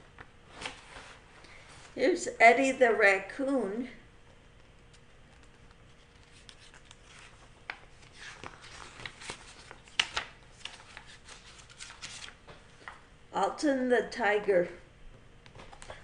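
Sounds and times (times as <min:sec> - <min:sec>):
book pages turning: 0:00.2 - 0:01.2, 0:04.3 - 0:13.0.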